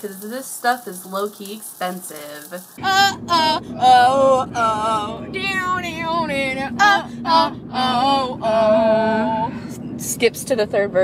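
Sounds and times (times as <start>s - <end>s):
girls singing: 2.8s - 9.5s
car road rumble: 2.8s - 11.0s.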